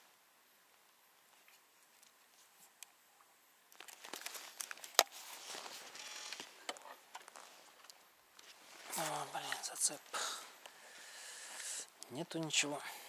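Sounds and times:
fishing gear rustling: 3.7 - 12.0.

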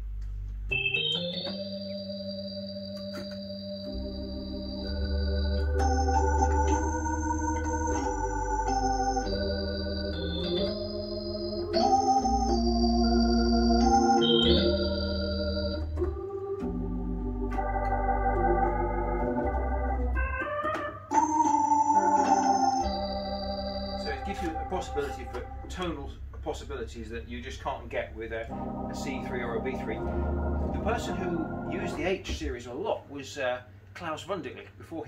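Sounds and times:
organ playing chords: 0.0 - 32.5.

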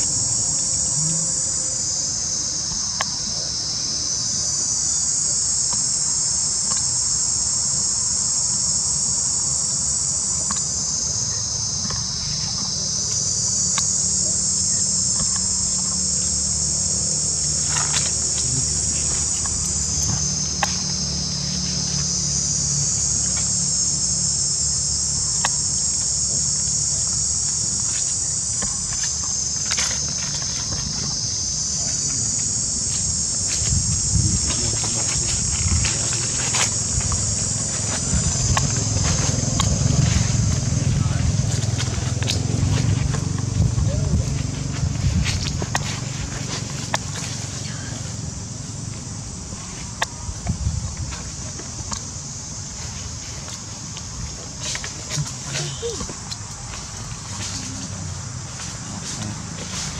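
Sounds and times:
high-pitched insect chorus: 0.0 - 59.9
faint ticks: 25.3 - 26.1.

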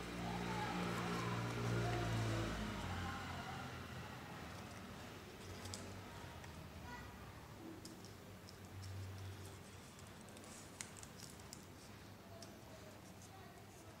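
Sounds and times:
paper being folded and creased: 0.3 - 2.9, 9.2 - 12.1.

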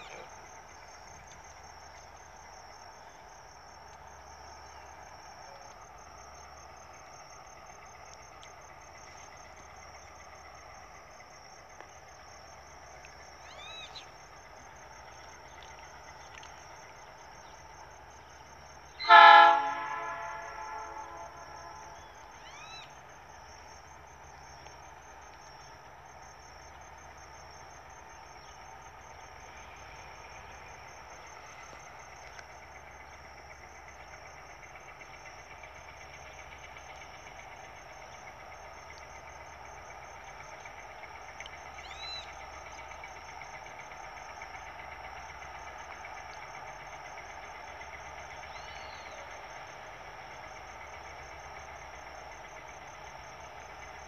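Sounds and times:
distant diesel locomotive engine: 0.0 - 54.0
insect trill: 0.0 - 54.0
bird chirps: 13.4 - 14.2.

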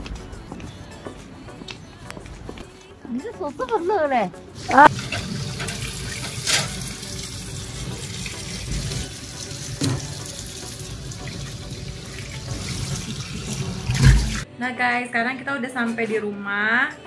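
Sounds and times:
tap running into steel sink: 9.7 - 10.4.

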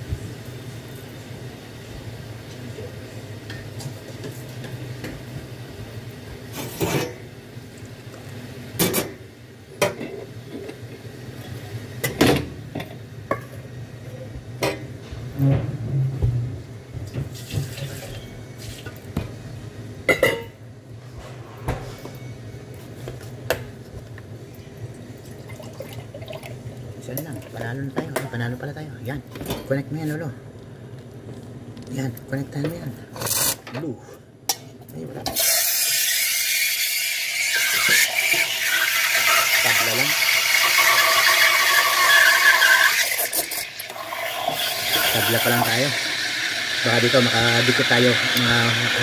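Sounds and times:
cups and dishes clinking: 20.1 - 20.6
water running from tap: 36.6 - 49.0.

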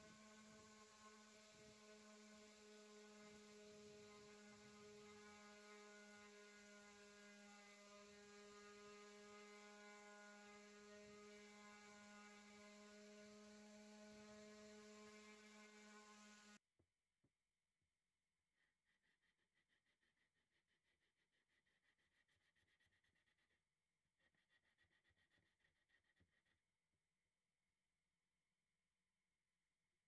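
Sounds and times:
orbital sander on wood: 0.0 - 16.6.

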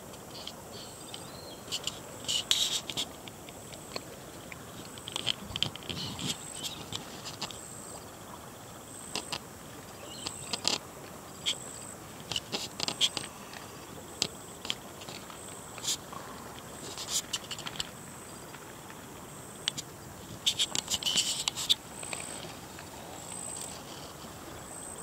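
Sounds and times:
steady background hiss: 0.0 - 25.0
light rustles: 19.7 - 24.6.

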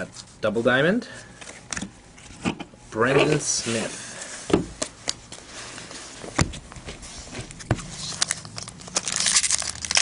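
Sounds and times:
foil wrapper crinkling: 7.9 - 10.0.

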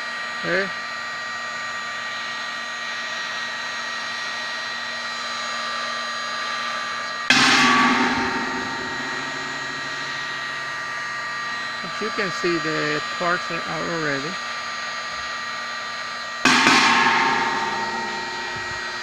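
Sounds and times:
heat gun blowing: 0.4 - 19.0
sudden loud knock: 7.3 - 10.7.

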